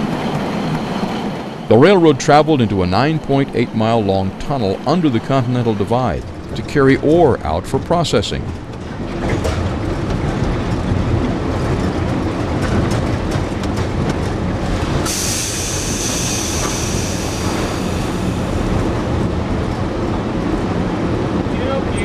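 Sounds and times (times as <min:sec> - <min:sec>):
rail clicks: 0:00.0 - 0:22.0
train rumbling through tunnel: 0:00.0 - 0:22.0
sharp high hiss: 0:15.0 - 0:19.2.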